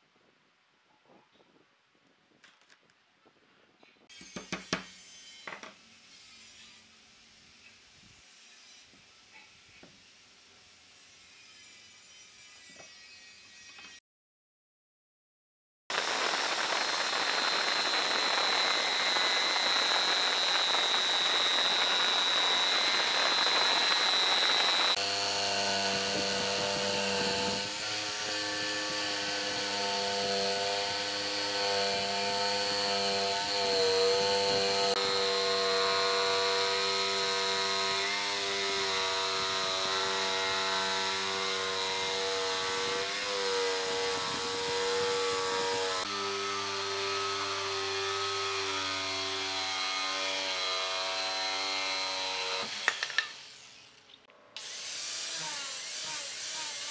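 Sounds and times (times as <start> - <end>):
jigsaw cutting wood: 15.9 - 54.0, 54.6 - 56.9.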